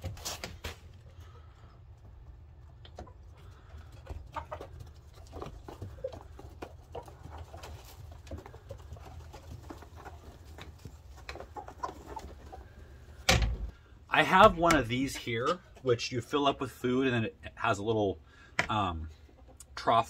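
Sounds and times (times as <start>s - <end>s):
chickens pecking at a pan: 0.0s - 13.3s
chickens clucking: 1.0s - 13.3s, 18.9s - 19.8s.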